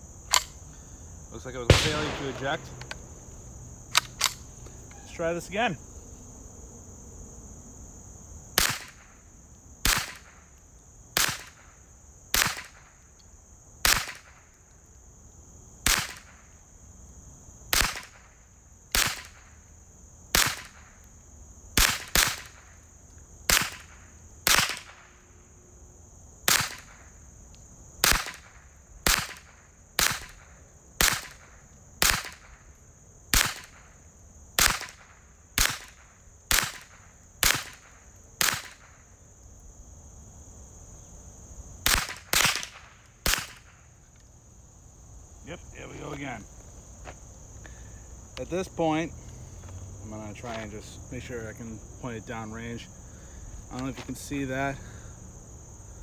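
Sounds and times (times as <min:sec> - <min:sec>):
rifle shots: 0:01.6 - 0:03.2, 0:08.6 - 0:09.1, 0:09.8 - 0:10.4, 0:11.2 - 0:11.6, 0:12.3 - 0:12.8, 0:13.8 - 0:14.4, 0:15.8 - 0:16.4, 0:17.7 - 0:18.3, 0:18.9 - 0:19.4, 0:20.3 - 0:20.9, 0:21.8 - 0:22.7, 0:23.5 - 0:25.1, 0:26.5 - 0:27.0, 0:28.0 - 0:32.6, 0:33.3 - 0:33.9, 0:34.6 - 0:39.0, 0:41.8 - 0:43.8.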